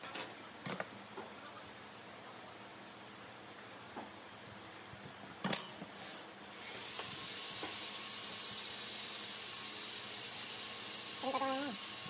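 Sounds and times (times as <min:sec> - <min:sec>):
steady hiss: 0:06.5 - 0:12.0.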